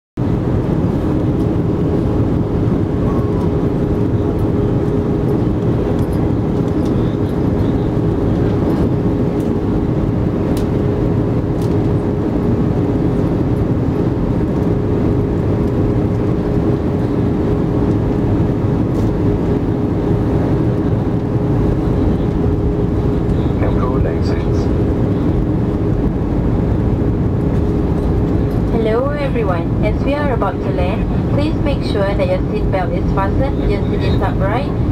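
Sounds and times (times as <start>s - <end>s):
constant cabin hum: 0.2s - 34.9s
jet engines and airflow roar: 0.2s - 34.9s.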